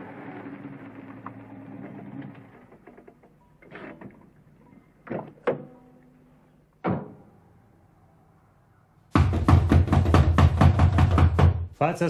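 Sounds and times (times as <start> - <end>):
door slamming: 6.8 - 7.3
door thud: 6.8 - 7.3.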